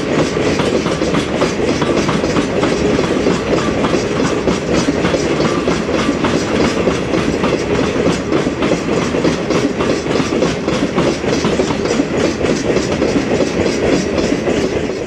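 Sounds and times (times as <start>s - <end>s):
train rumble: 0.0s - 15.0s
train wheels clattering over rail joints: 0.0s - 15.0s.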